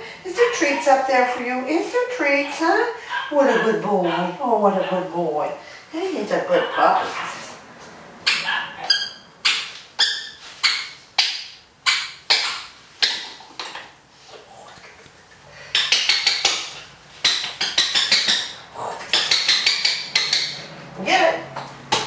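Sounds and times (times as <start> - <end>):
hand slapping a hard floor: 21.6 - 22.0.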